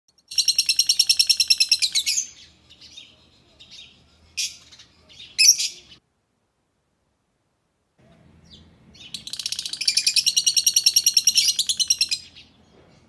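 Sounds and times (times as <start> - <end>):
lovebird chirping: 0.2 - 6.0, 8.1 - 13.0
sharp bird calls: 0.2 - 6.0, 8.0 - 13.0
bird twittering: 0.3 - 5.9, 8.4 - 12.6.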